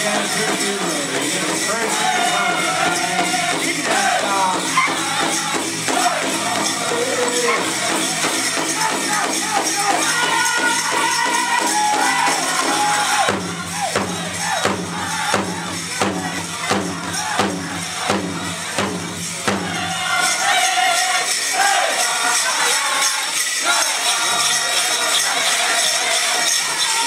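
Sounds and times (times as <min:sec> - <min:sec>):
big drum strokes: 0:00.0 - 0:20.6
bells jingling: 0:00.0 - 0:27.0
drum group singing: 0:00.0 - 0:27.0.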